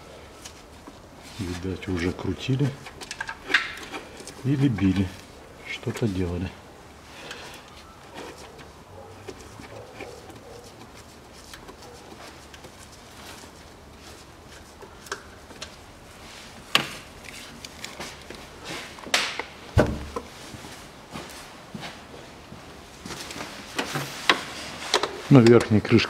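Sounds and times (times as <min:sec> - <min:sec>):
tools clicking on engine parts: 0:02.8 - 0:05.2
dull thud: 0:19.8 - 0:20.1.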